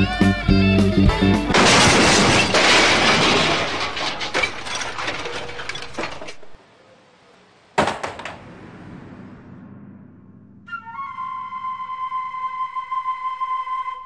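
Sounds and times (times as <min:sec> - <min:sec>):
bicycle wheel falling rattle: 0:01.5 - 0:06.6
crash of smashing and breaking: 0:01.5 - 0:06.6.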